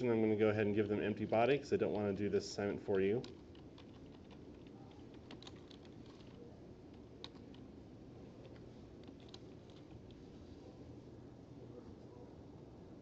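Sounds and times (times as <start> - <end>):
low room hum: 0.0 - 13.0
typing on computer keyboard: 3.0 - 7.7, 8.3 - 10.2.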